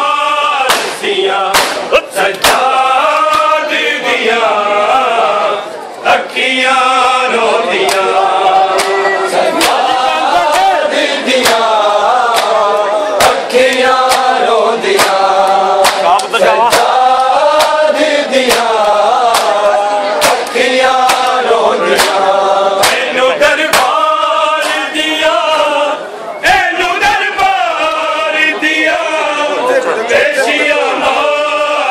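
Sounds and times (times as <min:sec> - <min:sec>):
men chanting in chorus: 0:00.0 - 0:31.9
chest-beating slaps: 0:00.7 - 0:03.5, 0:08.8 - 0:09.0, 0:09.6 - 0:09.9, 0:11.4 - 0:11.7, 0:12.3 - 0:12.6, 0:13.2 - 0:15.2, 0:15.8 - 0:17.8, 0:18.4 - 0:19.6, 0:20.2 - 0:22.2, 0:22.8 - 0:23.1, 0:23.7 - 0:24.0.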